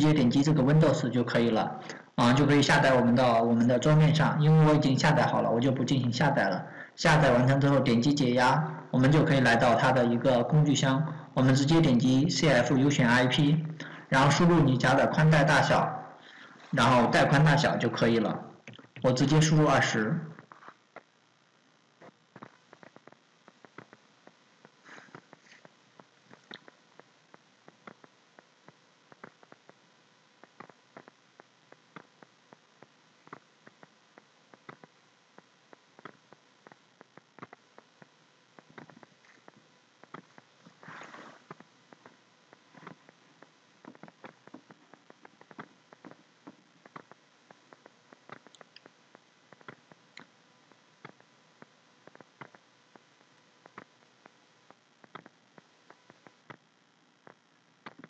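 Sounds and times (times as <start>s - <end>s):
faint steady hiss: 0.0s - 58.0s.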